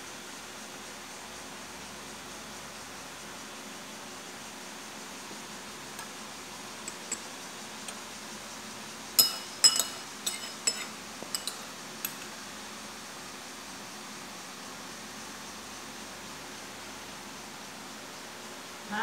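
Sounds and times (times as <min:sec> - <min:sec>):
steady background hiss: 0:00.0 - 0:19.0
metal spoon clinking on ceramic bowl: 0:06.8 - 0:07.3, 0:09.2 - 0:12.3.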